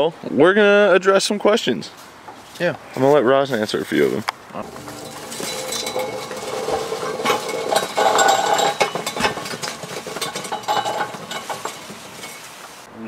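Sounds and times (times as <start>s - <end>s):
ringing squeak: 4.6s - 12.5s
metal parts clinking: 4.6s - 12.6s.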